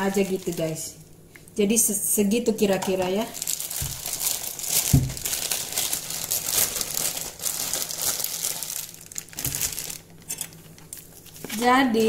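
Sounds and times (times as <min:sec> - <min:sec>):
plastic crinkling and rustling: 0:00.0 - 0:00.9, 0:02.7 - 0:12.0.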